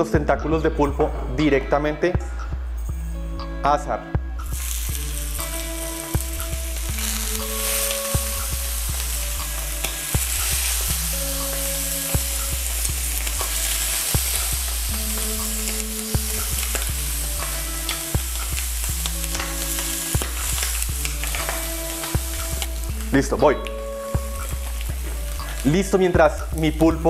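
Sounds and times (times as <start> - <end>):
background music with a beat: 0.0 - 27.0
octopus sizzling in a hot pan: 4.4 - 26.6.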